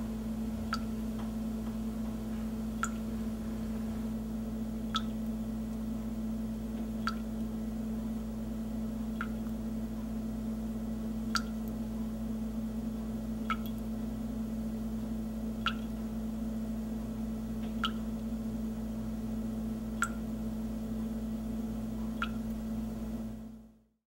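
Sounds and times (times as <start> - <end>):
steady low hum: 0.0 - 24.0
water dripping: 0.6 - 1.8, 2.7 - 3.1, 4.7 - 5.9, 6.5 - 7.6, 9.0 - 9.7, 11.2 - 11.9, 13.4 - 14.0, 15.5 - 16.2, 17.5 - 18.4, 19.9 - 20.4, 21.1 - 22.7.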